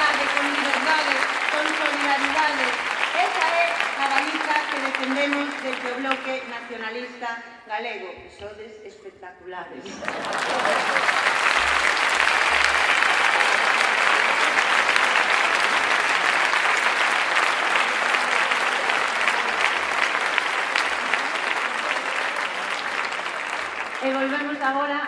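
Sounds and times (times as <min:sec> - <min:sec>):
large audience applauding: 0:00.0 - 0:06.8, 0:09.9 - 0:25.0.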